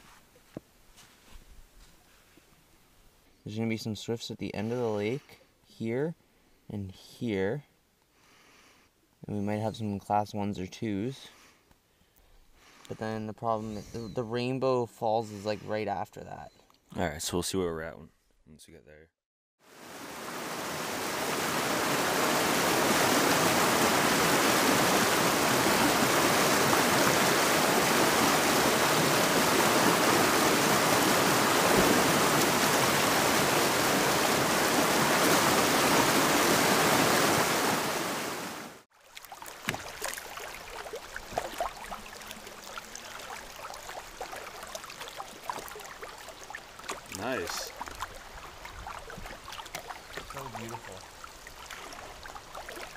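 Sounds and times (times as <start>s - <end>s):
flowing river water: 19.6s - 52.9s
roar of river rapids: 19.8s - 38.8s
canoe paddle strokes: 21.0s - 38.3s, 38.9s - 52.9s.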